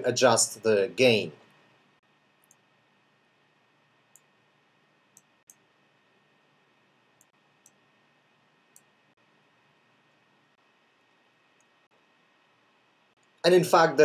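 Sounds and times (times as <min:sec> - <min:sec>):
faint steady hiss: 0:00.0 - 0:14.0
computer mouse clicks: 0:02.4 - 0:02.6, 0:05.1 - 0:05.6, 0:07.2 - 0:07.8.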